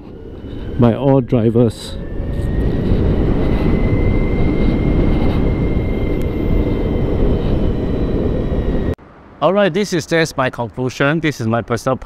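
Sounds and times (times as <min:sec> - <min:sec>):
faint high whine: 0:00.0 - 0:09.6
wind and road rush: 0:00.0 - 0:12.0.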